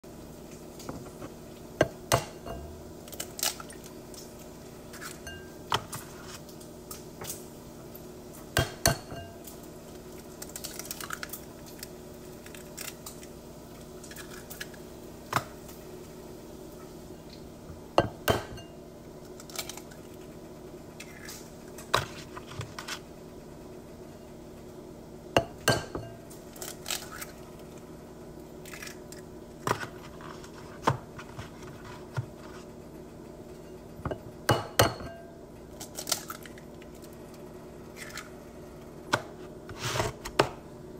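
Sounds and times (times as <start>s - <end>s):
steady low hum: 0.0s - 40.9s
eggshells cracking: 10.2s - 13.4s, 35.8s - 37.2s.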